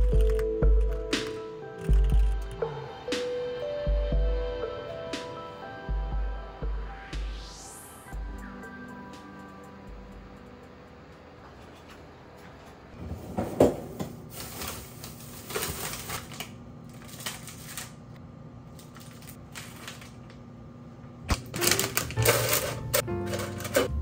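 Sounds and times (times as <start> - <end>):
plastic bags crinkling: 14.2 - 20.3, 21.3 - 23.9.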